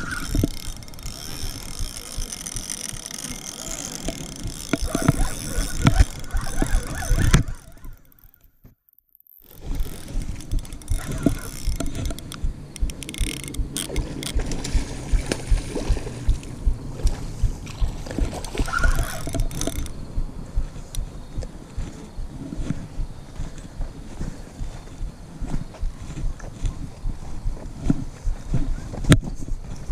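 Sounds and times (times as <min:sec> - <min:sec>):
fishing reel clicking: 0:00.0 - 0:14.8, 0:17.6 - 0:20.0, 0:20.8 - 0:21.1.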